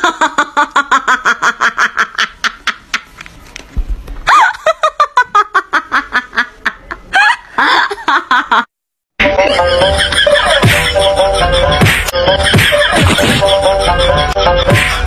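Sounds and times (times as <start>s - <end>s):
honking laughter: 9.2s - 15.0s.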